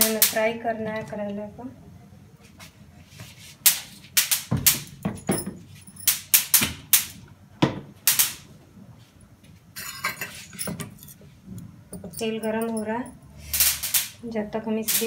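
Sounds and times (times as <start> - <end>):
steel utensils clinking: 9.8 - 11.2, 12.0 - 14.2.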